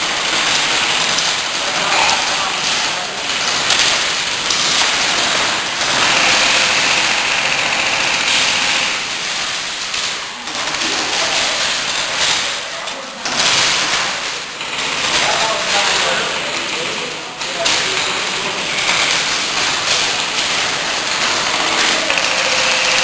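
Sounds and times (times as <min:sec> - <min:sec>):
airsoft guns firing: 0:00.0 - 0:23.0
pellets pattering on plywood: 0:00.0 - 0:23.0
players' voices: 0:00.0 - 0:23.0.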